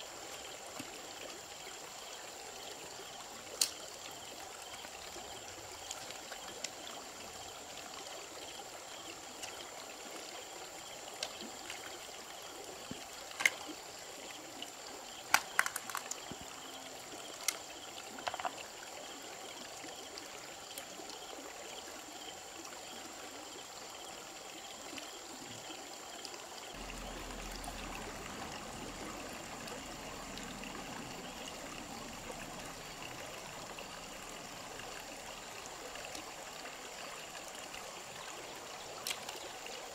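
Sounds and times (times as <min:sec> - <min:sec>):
water trickling over stones: 0:00.0 - 0:39.9
stones clicking and knocking: 0:15.3 - 0:16.4, 0:18.2 - 0:18.6.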